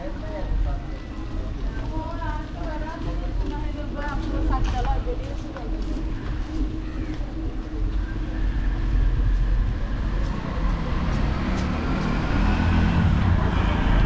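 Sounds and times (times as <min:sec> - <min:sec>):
low road noise: 0:00.0 - 0:14.0
vehicle engine running close by: 0:08.9 - 0:14.0.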